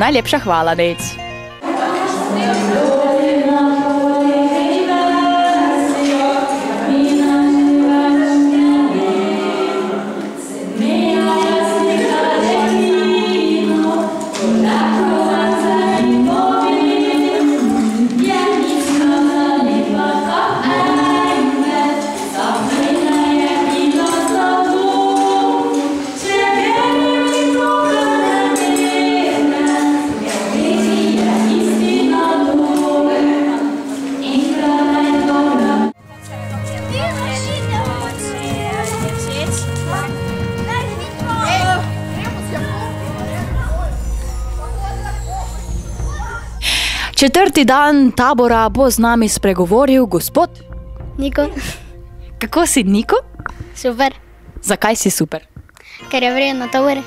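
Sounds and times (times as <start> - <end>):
women singing a cappella: 1.6 - 36.0.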